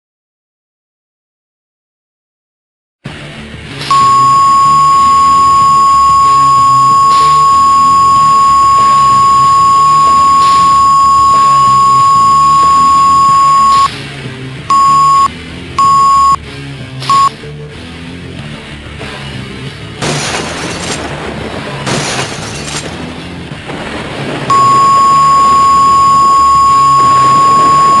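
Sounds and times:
background music: 0:03.1 - 0:25.8
censor bleep: 0:03.9 - 0:13.9, 0:14.7 - 0:16.4, 0:17.1 - 0:17.3, 0:24.5 - 0:28.0.

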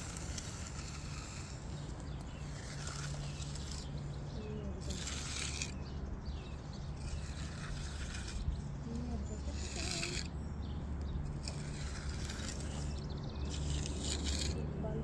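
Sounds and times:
concrete edger scraping wet concrete: 0:00.0 - 0:10.5, 0:11.2 - 0:15.0.

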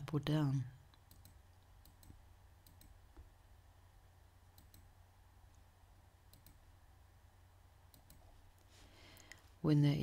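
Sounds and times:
faint low hum: 0:00.0 - 0:10.0
computer mouse clicks: 0:00.9 - 0:03.3, 0:04.5 - 0:04.9, 0:06.3 - 0:06.7, 0:07.9 - 0:08.4.

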